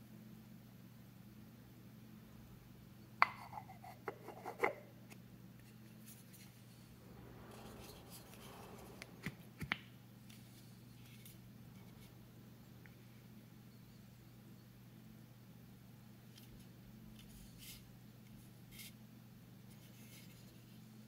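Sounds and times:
soft wood rubbing: 5.6s - 12.3s.

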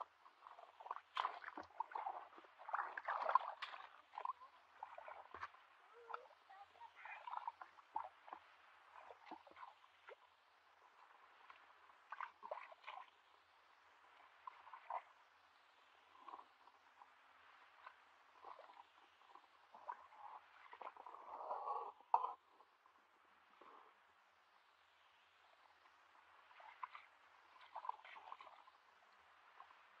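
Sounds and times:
splashing in muddy water: 0.5s - 8.1s.

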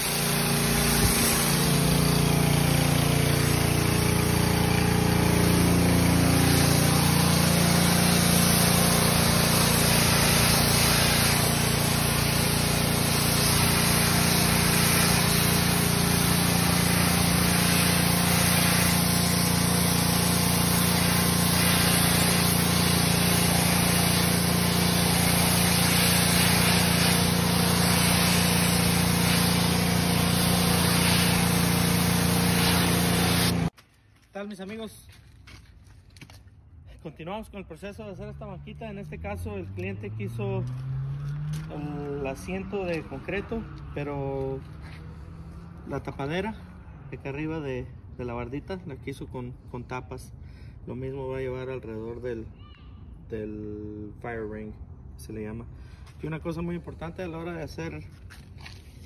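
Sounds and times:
pressure washer engine running: 0.0s - 33.8s
water jet spraying concrete: 0.0s - 33.8s.

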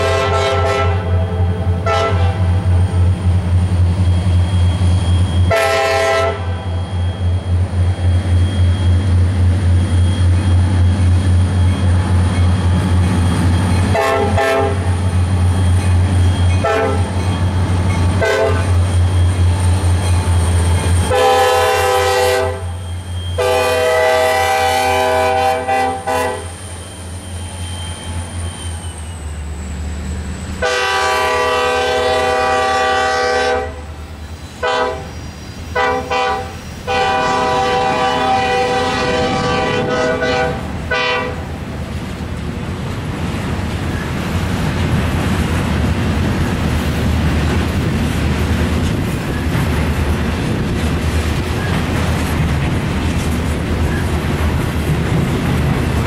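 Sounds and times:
train air horn: 0.0s - 2.6s, 5.4s - 6.8s, 13.9s - 15.0s, 16.6s - 17.2s, 18.2s - 18.8s, 21.0s - 26.6s, 30.6s - 34.0s, 34.6s - 41.6s
diesel locomotive engine drone: 0.0s - 56.0s.

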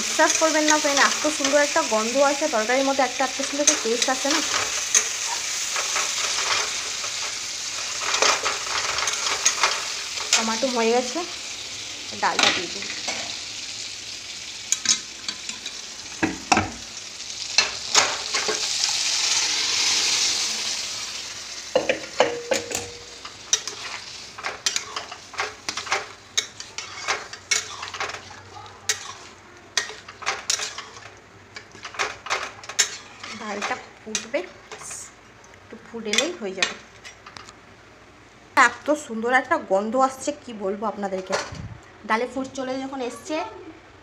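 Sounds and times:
dal sizzling in hot pan: 0.0s - 37.5s
metal spatula scraping pan: 22.0s - 35.0s.

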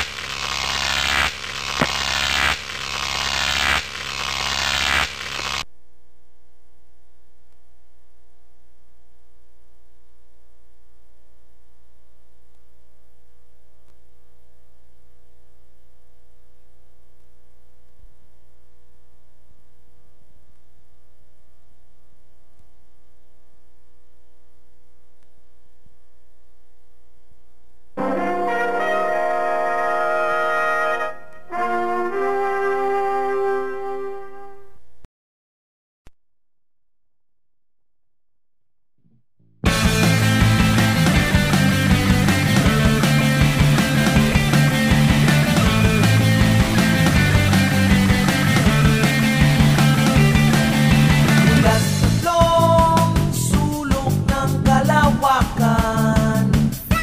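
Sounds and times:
sharp electric crack: 0.0s - 5.6s
electric crackling and buzzing: 0.0s - 5.7s, 39.7s - 52.2s
steady low hum: 5.1s - 28.0s.

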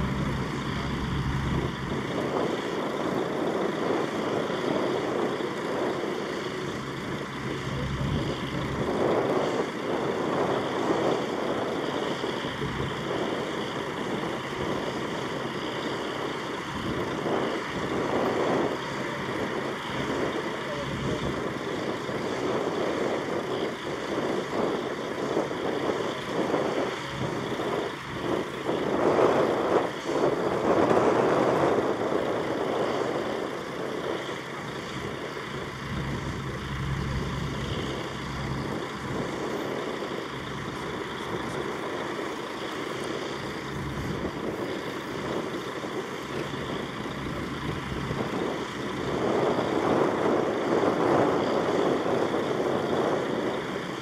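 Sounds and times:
heavy vehicle engines running: 0.0s - 54.0s.

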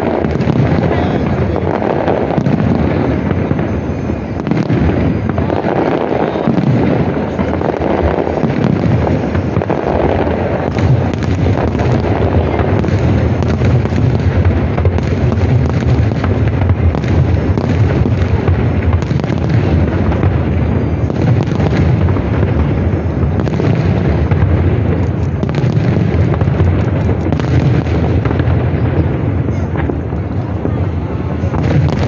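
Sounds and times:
fireworks crackling: 0.0s - 32.0s
fireworks rumbling: 0.0s - 32.0s.

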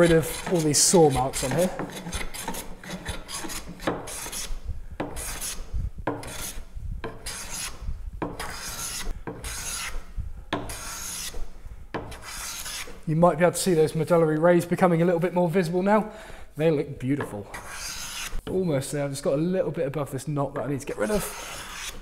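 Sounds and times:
hand plane rasping on wood: 0.0s - 5.6s, 6.2s - 7.8s, 8.4s - 10.0s, 10.6s - 11.4s, 12.0s - 13.0s, 17.5s - 18.3s, 21.2s - 22.0s.

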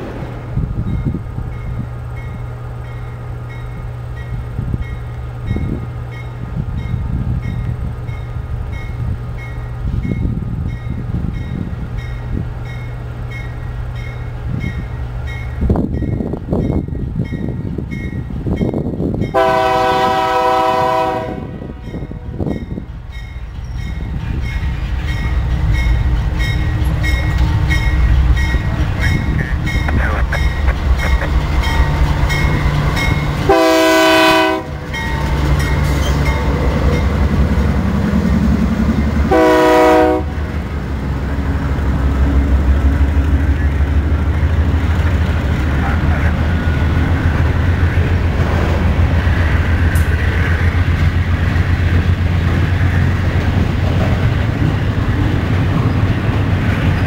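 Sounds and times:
locomotive engine and wheel rumble: 0.0s - 57.0s
locomotive air horn blasts: 19.3s - 22.4s, 33.5s - 34.8s, 39.3s - 40.4s
crossing bell dinging: 21.8s - 37.4s.

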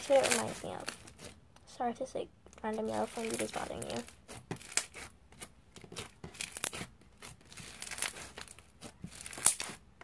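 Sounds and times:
foam slime crunching and popping: 0.0s - 1.4s, 2.6s - 10.0s.

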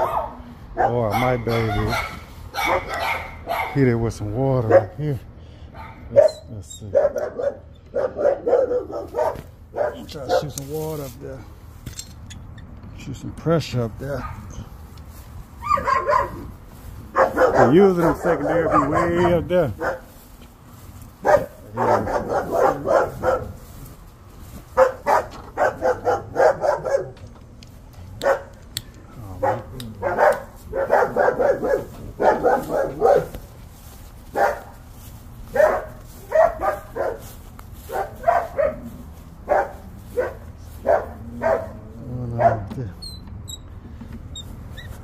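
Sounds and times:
dog barking: 0.0s - 3.8s, 4.6s - 5.0s, 5.8s - 10.6s, 14.2s - 14.6s, 15.6s - 16.5s, 17.1s - 20.1s, 21.2s - 23.7s, 24.7s - 27.2s, 28.2s - 28.6s, 29.2s - 33.5s, 34.3s - 34.8s, 35.5s - 37.3s, 37.9s - 42.8s.

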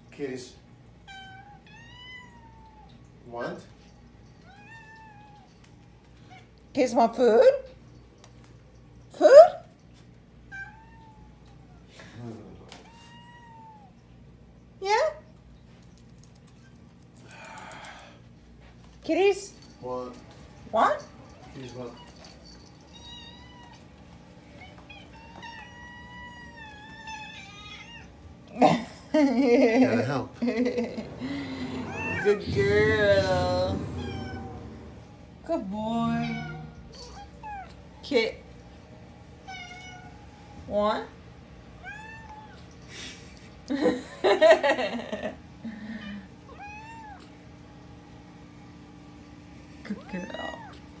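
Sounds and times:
cat meowing: 1.1s - 3.0s, 10.5s - 11.5s, 12.8s - 14.0s, 22.8s - 23.9s, 24.6s - 28.2s, 31.2s - 35.1s, 36.1s - 37.9s, 39.4s - 40.3s, 41.8s - 42.7s, 46.5s - 47.3s.

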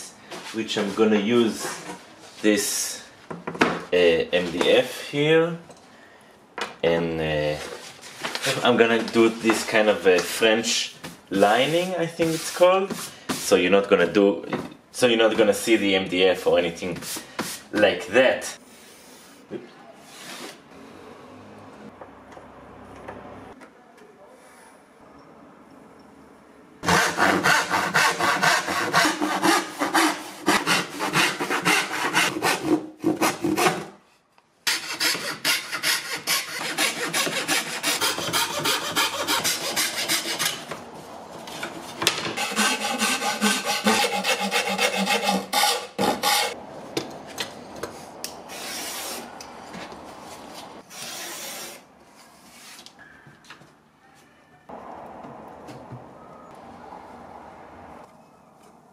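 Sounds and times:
fret saw cutting board: 26.8s - 33.8s, 34.7s - 40.7s, 42.4s - 46.6s.

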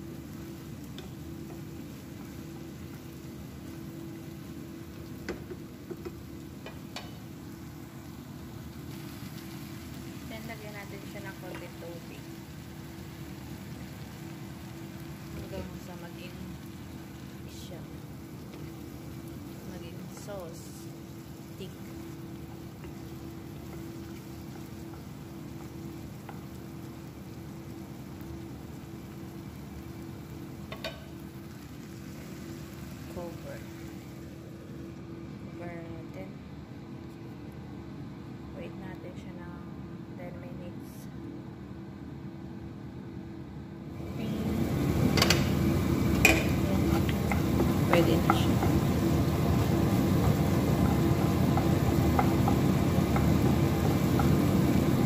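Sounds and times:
sauce sizzling in a pan: 0.0s - 34.9s, 44.0s - 55.0s
constant hum: 0.0s - 55.0s
utensil clicking against pan: 45.1s - 48.8s.

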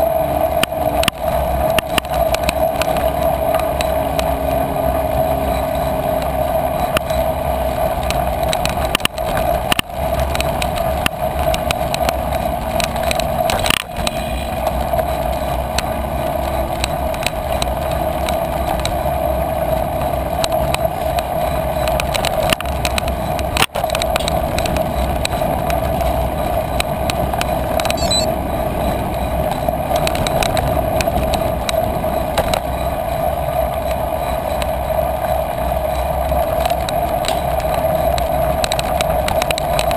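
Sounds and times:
bicycle tyres rolling on trail: 0.0s - 39.9s
bike knocking and rattling: 0.6s - 39.9s.

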